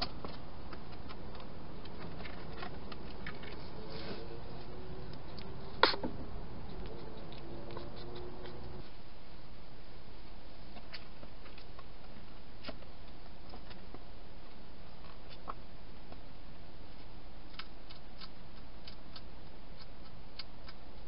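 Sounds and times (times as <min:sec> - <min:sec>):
hedgehog crunching dry food: 0:00.0 - 0:03.7, 0:04.6 - 0:09.0, 0:10.7 - 0:14.0, 0:16.9 - 0:21.0.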